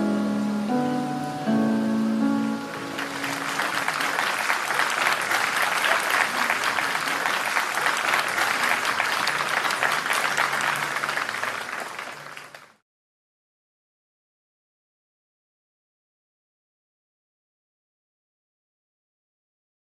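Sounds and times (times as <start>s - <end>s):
audience applauding: 2.7s - 12.8s.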